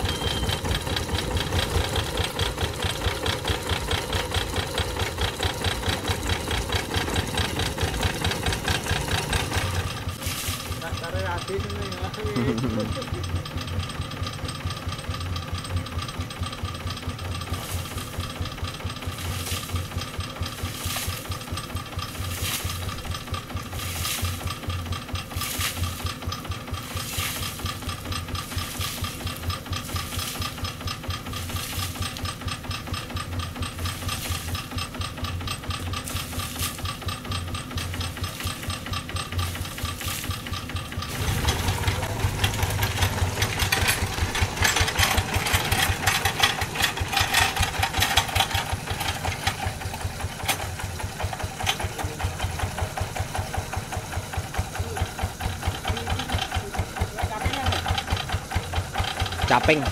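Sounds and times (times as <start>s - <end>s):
diesel engine running: 0.0s - 59.9s
water splashing on machine: 19.0s - 32.6s, 33.3s - 59.9s.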